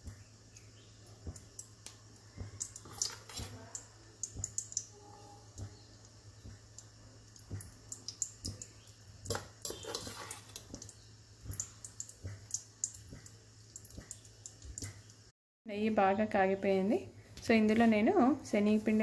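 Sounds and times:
ghee crackling in a pan: 0.0 - 15.3
low steady hum: 0.0 - 19.0
spoon stirring in a pan: 1.2 - 15.1.

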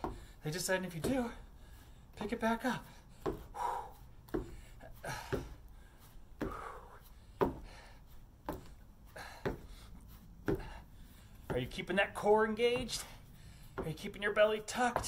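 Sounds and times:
heavy breathing: 0.0 - 0.5, 1.1 - 11.5, 12.8 - 13.8
feet landing on wooden deck: 0.0 - 15.0.

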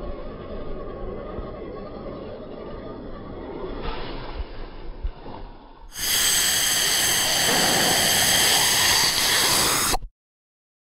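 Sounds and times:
rushing hiss sound effect: 5.9 - 10.0.

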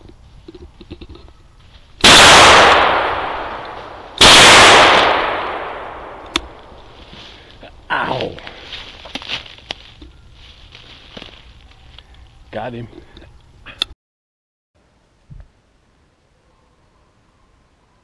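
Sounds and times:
gunshots echoing through woods: 2.0 - 7.0.

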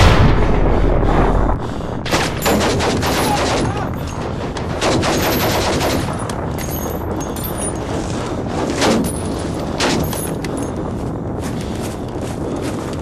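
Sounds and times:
gunshots: 0.0 - 6.4, 8.4 - 10.3
steady rushing noise: 0.0 - 13.0.

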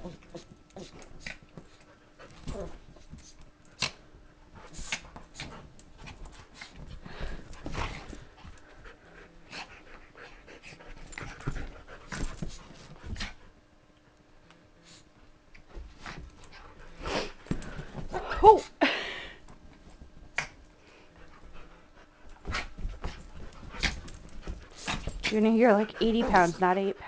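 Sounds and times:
dogs scuffling on cushions: 0.0 - 13.5, 14.8 - 18.6, 19.4 - 27.0
dogs panting: 4.4 - 13.4, 20.8 - 27.0.

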